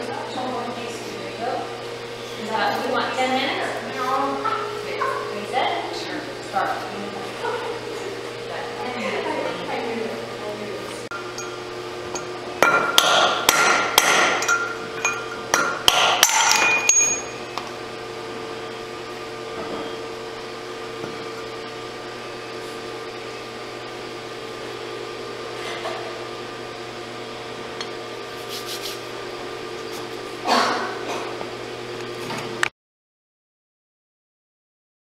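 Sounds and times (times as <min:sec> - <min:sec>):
hammer tapping metal punch: 0:11.1 - 0:17.4.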